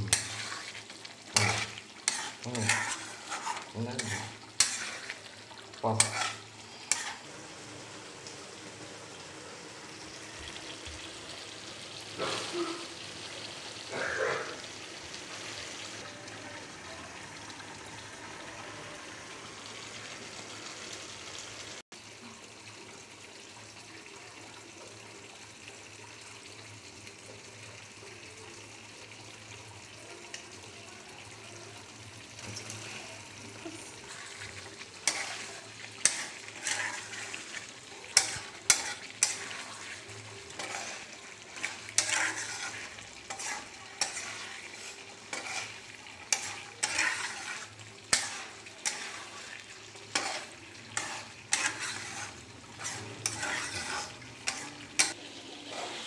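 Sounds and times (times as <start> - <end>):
spatula scraping and knocking pan: 0.0 - 5.3, 6.0 - 7.2, 34.1 - 56.0
curry sizzling in a wok: 0.0 - 56.0.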